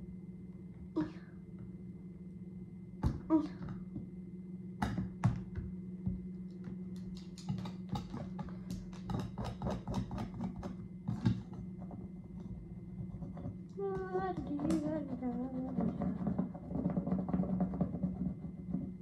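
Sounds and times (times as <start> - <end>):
steady low hum: 0.0 - 19.0
pen tapping and clicking: 7.0 - 11.4.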